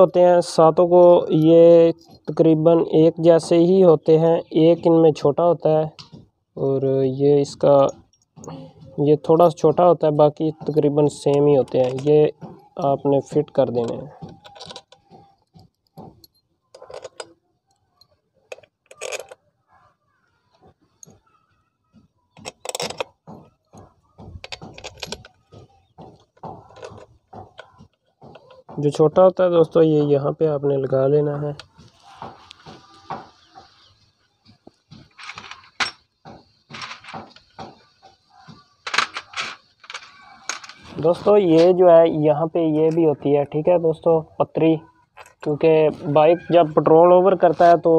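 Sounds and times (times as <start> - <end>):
metal bolts clicking and clinking: 1.0 - 2.7, 9.4 - 19.4, 22.4 - 29.0, 34.7 - 38.1, 38.8 - 41.6, 45.1 - 45.6
metallic clatters: 35.0 - 41.3.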